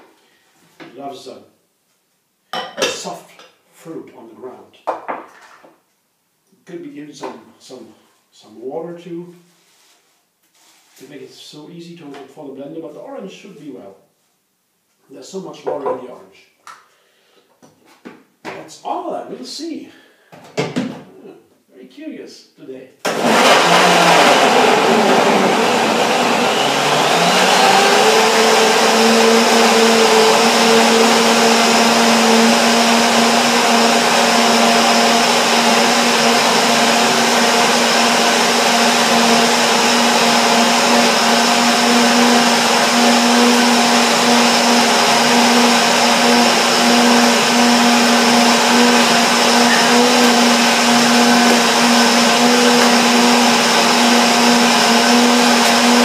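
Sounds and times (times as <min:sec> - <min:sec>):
blender running at high speed: 0:23.1 - 0:56.0.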